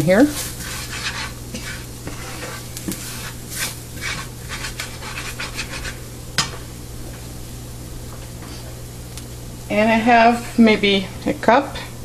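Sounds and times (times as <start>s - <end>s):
spoon scraping a pan: 0.0s - 6.1s
faint sizzle: 0.0s - 12.0s.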